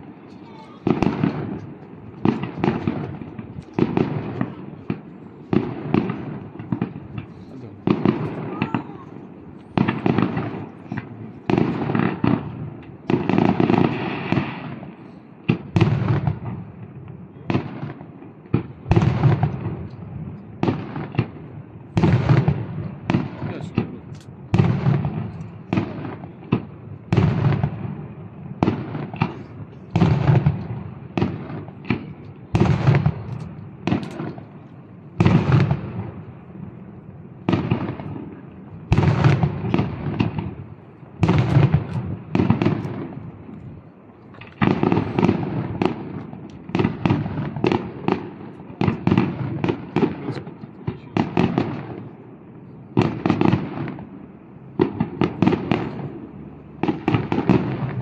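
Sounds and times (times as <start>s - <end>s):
firework shells bursting: 28.6s - 50.5s.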